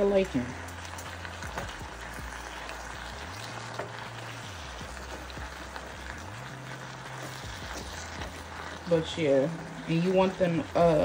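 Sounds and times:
food sizzling in a skillet: 0.0s - 11.0s.

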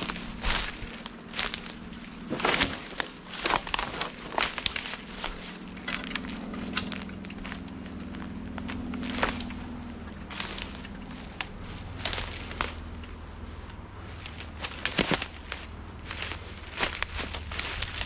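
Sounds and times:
footsteps through brush: 0.0s - 18.0s
twigs snapping underfoot: 0.0s - 18.0s.

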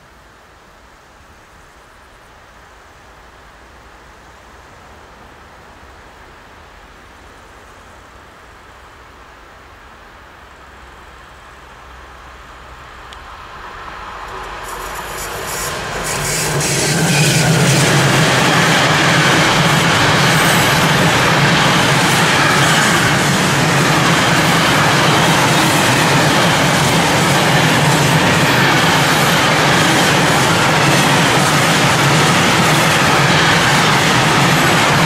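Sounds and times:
freight train passing: 9.8s - 35.0s
wheels on rail: 10.7s - 35.0s.

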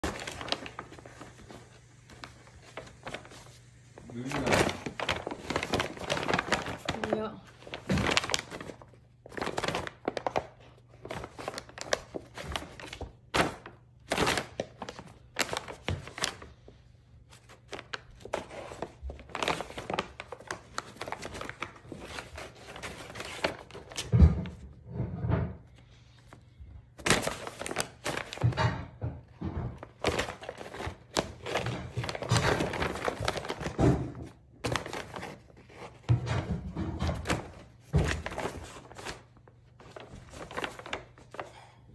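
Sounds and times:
paper bag crinkling and rustling: 0.0s - 25.1s, 25.8s - 41.7s
dull thumps against bag and floor: 36.1s - 38.6s.

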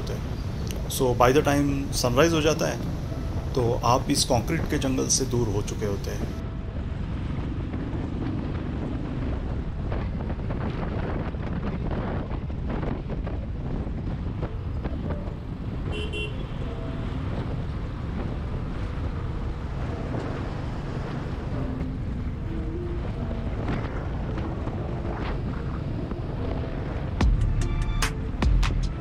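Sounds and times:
wind buffeting microphone: 0.0s - 27.4s
motorcycle engine cruising: 0.2s - 27.4s
horn toot: 15.9s - 16.8s.

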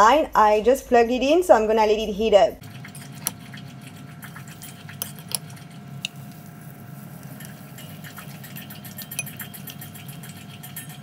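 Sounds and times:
metal spoon clinking against bowl: 7.3s - 10.0s.

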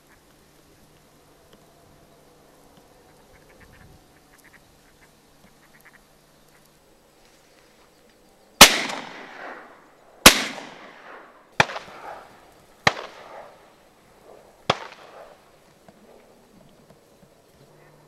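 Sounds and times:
shotgun blasts echoing: 8.6s - 13.7s, 14.6s - 15.4s.

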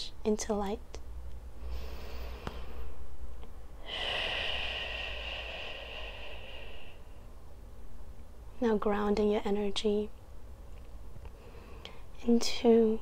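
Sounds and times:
woman's slow out-breath: 1.6s - 3.0s, 3.8s - 7.2s.

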